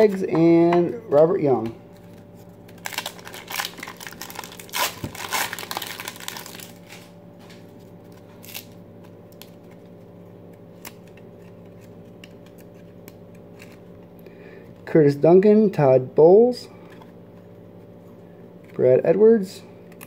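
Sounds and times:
foil wrapper crinkling and tearing: 2.0s - 7.1s, 8.2s - 9.8s.

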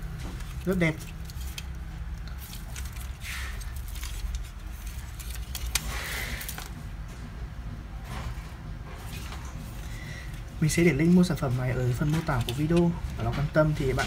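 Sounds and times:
plastic and metal parts clicking: 11.8s - 14.0s.

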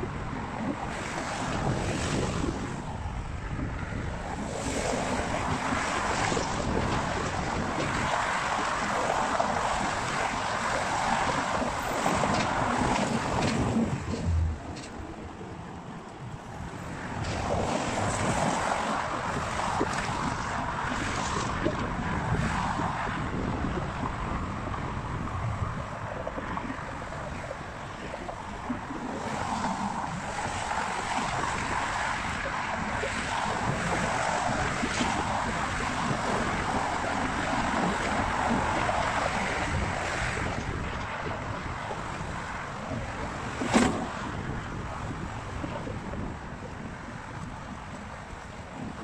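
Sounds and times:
wind buffeting microphone: 0.0s - 49.0s
car traffic passing: 8.3s - 19.9s.

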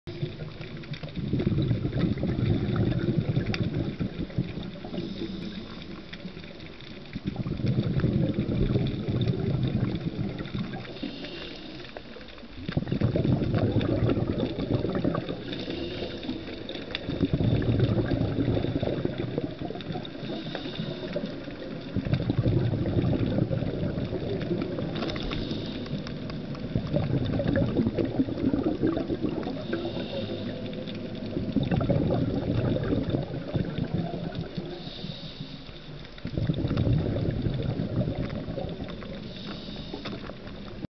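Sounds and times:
regulator bubbling exhalations: 0.1s - 40.9s
high hiss of inhalation: 4.9s - 6.1s, 10.8s - 12.2s, 15.4s - 16.6s, 20.2s - 21.4s, 25.0s - 26.2s, 29.5s - 31.0s, 34.6s - 36.0s, 39.2s - 40.3s.

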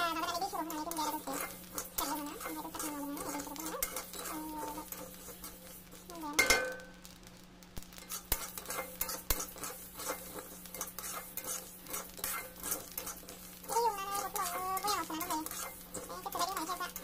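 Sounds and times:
spatula scraping rice in wok: 0.0s - 7.2s, 7.8s - 17.0s
metal clank ringing: 6.4s - 6.9s.

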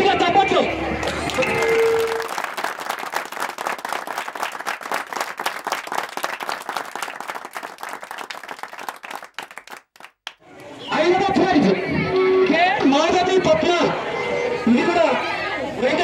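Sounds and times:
audience applauding: 1.0s - 10.4s.

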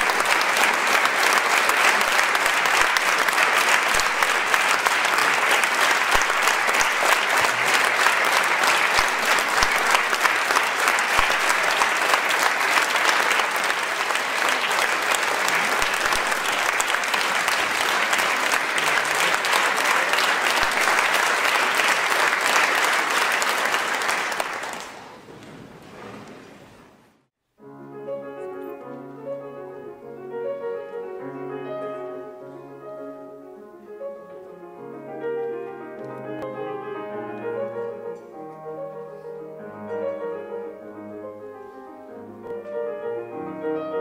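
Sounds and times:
audience applauding: 0.0s - 26.6s.

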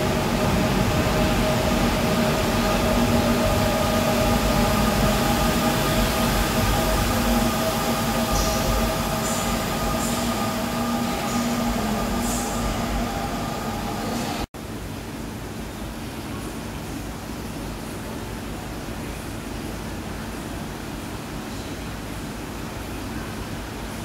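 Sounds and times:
electric train passing: 0.0s - 14.5s.

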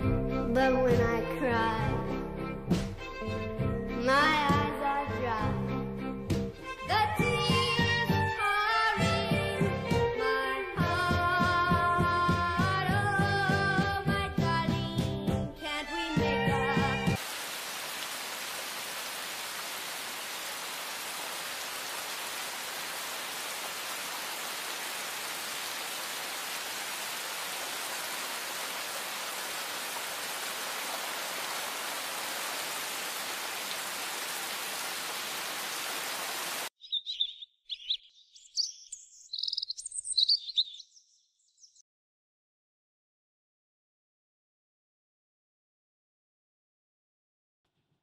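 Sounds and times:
steady hiss: 17.2s - 36.7s
small birds chirping: 35.6s - 41.8s.

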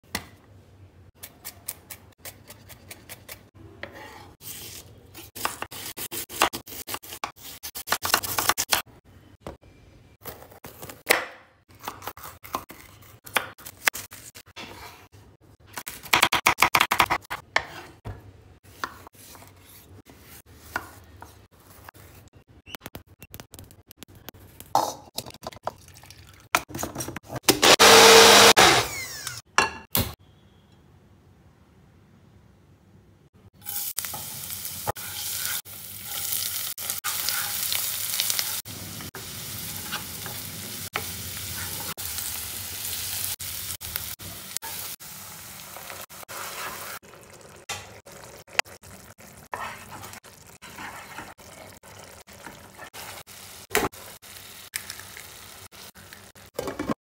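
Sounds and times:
blender motor running: 27.6s - 29.4s.

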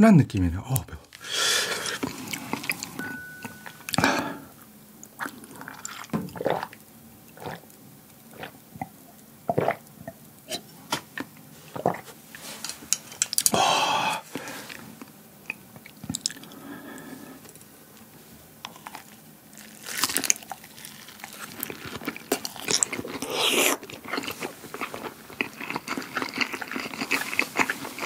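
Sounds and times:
loud breath out: 1.2s - 2.0s, 4.0s - 4.5s, 13.5s - 14.7s
gulping and swallowing: 5.2s - 6.8s, 7.4s - 7.6s, 8.3s - 12.1s.

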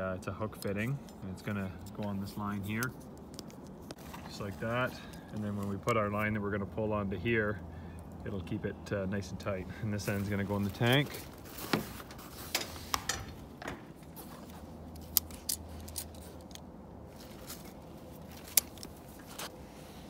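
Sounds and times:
hand tool clicks and snaps: 14.9s - 16.6s.

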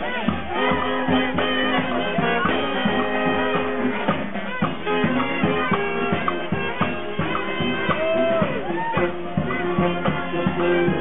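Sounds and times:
brass and wind instruments: 0.0s - 11.0s
drum hits: 0.0s - 11.0s.

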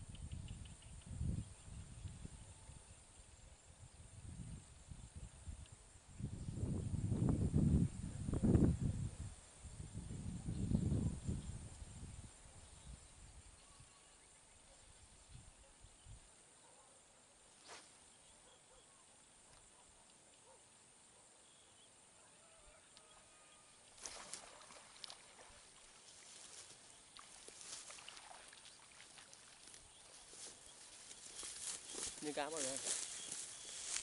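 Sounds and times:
faint outdoor hiss: 0.0s - 34.0s
faint rustles: 23.9s - 34.0s.

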